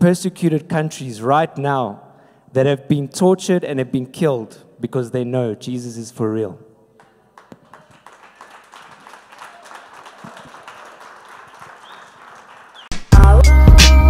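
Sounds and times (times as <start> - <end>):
audience applauding: 7.0 - 13.0
loud music with strong beat: 13.0 - 14.0.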